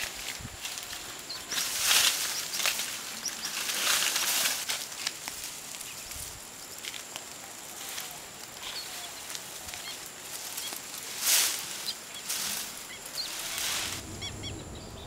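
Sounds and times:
soft hiss: 0.0s - 15.0s
small birds chirping: 0.8s - 4.3s, 5.7s - 6.9s, 8.6s - 11.1s, 11.7s - 15.0s
loud rustling: 11.0s - 15.0s.

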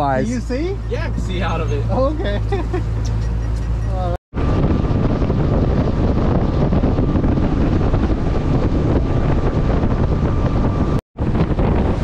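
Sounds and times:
boat engine low rumble: 0.0s - 12.0s
wind buffeting microphone: 2.8s - 12.0s.

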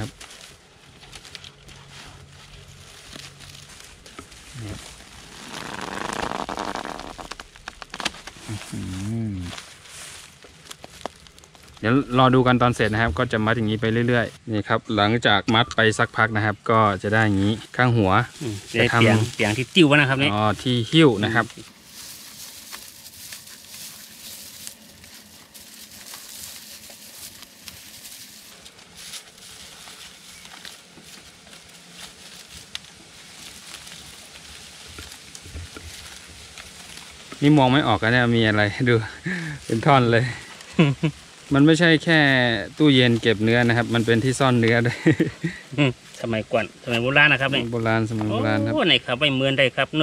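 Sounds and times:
dry straw rustling and crackling: 0.0s - 14.5s, 15.9s - 50.0s
steady high hiss: 11.8s - 50.0s.

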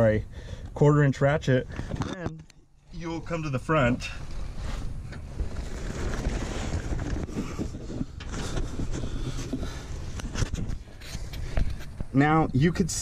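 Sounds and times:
microphone handling rustling: 1.7s - 2.5s, 4.2s - 12.2s.

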